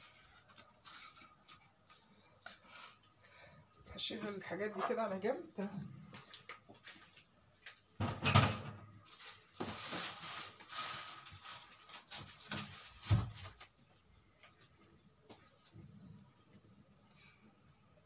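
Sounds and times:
kitchen things clattering: 8.0 - 8.9.

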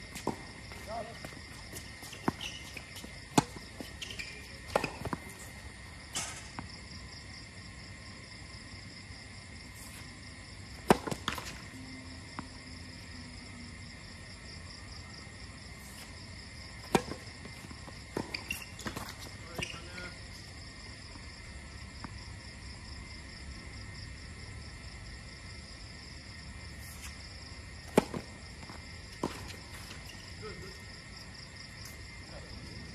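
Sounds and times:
insects chirping: 0.0 - 32.9
tennis balls struck and bouncing: 0.1 - 7.0, 10.6 - 12.7, 16.7 - 20.0, 27.7 - 30.7.

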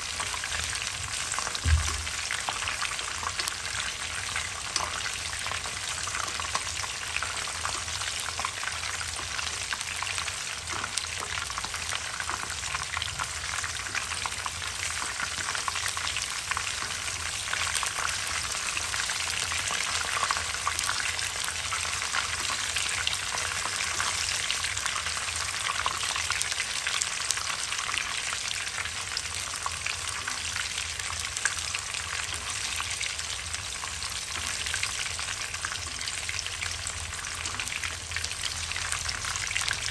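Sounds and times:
fish sizzling in hot oil: 0.0 - 39.9.

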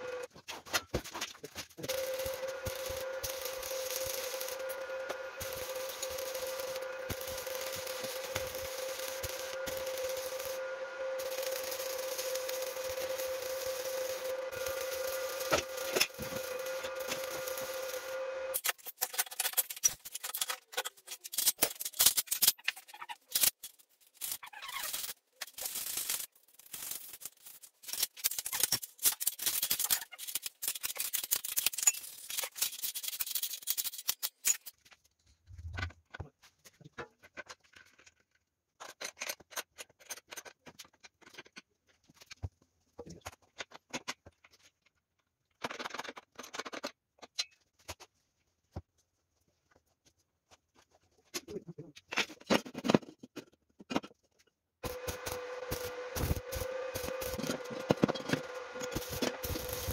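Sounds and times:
metallic clicking and scraping: 11.2 - 34.8.

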